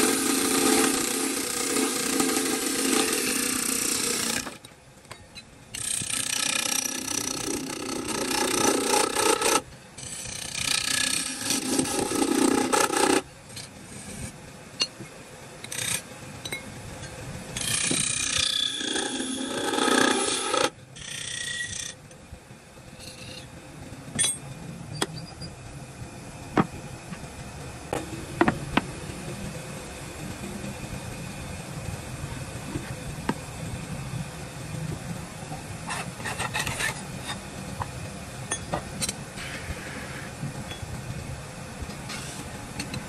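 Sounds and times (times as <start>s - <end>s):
woodworking tool scraping wood: 0.0s - 4.6s, 5.8s - 13.2s, 17.6s - 21.7s, 35.9s - 37.4s.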